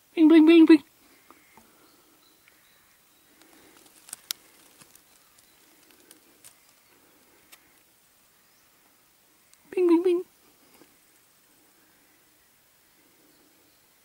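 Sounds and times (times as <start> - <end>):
faint clicks: 3.3 - 7.7, 9.4 - 9.7
light rustling: 3.3 - 7.8
sharp ticks: 3.4 - 6.8.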